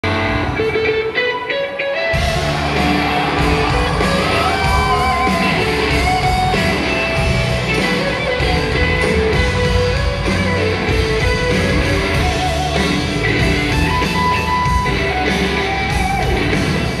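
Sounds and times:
live rock band playing: 0.0 - 17.0.

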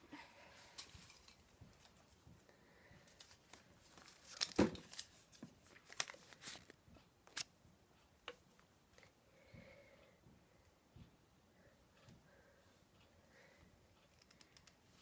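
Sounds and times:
paper rustling and crinkling: 3.1 - 7.4.

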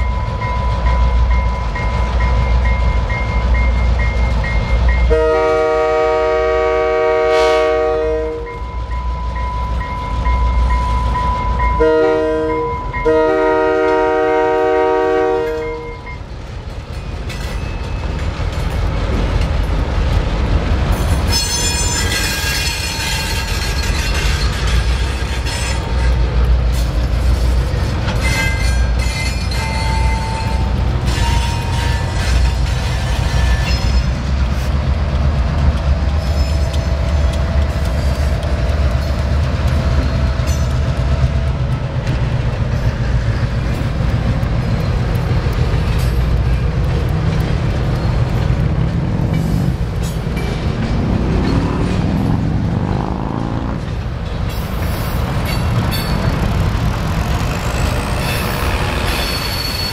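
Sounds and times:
diesel engines rumbling: 0.0 - 59.9
train wheel clatter: 0.0 - 59.9
locomotive horn blasts: 5.1 - 8.6, 11.8 - 16.1
high wheel squeals: 21.2 - 26.2, 28.1 - 34.3, 54.6 - 59.9.

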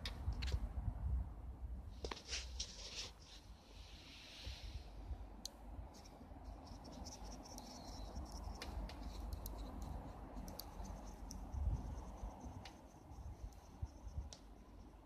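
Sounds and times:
high steady chirping: 6.5 - 15.0
embers clicking and crackling: 7.6 - 11.5.

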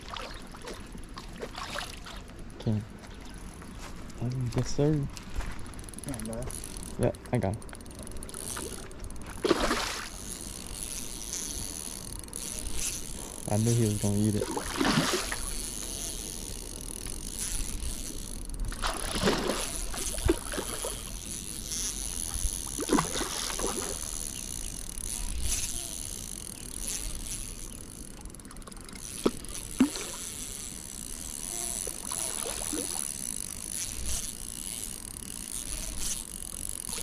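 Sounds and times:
water sloshing and splashing: 0.0 - 3.7, 8.5 - 10.3, 14.4 - 15.6, 18.7 - 21.1, 22.7 - 24.2
fishing reel cranking: 0.0 - 37.0.

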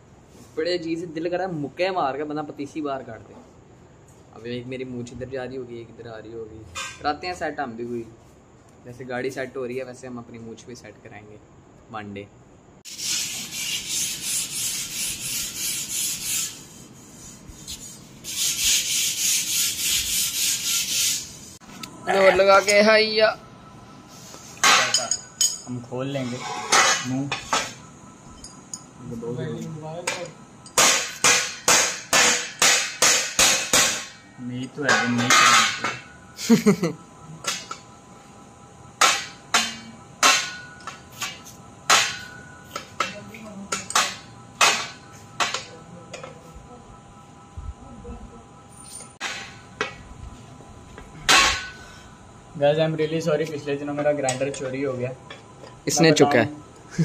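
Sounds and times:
sandpaper scrubbing metal pipe: 12.9 - 21.6.

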